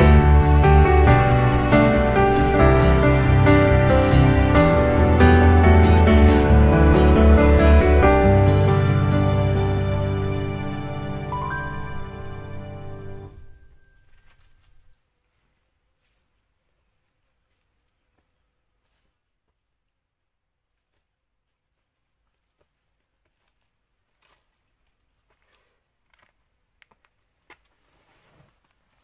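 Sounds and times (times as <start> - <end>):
background music: 0.0 - 13.8
insects trilling: 10.9 - 29.0.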